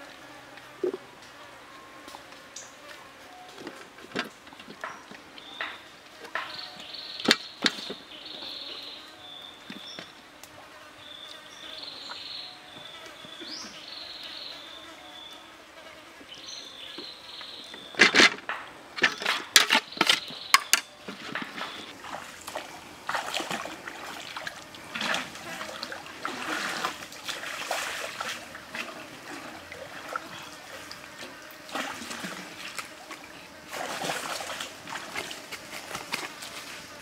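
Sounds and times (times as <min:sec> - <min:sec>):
water splashing and sloshing: 0:21.0 - 0:37.0.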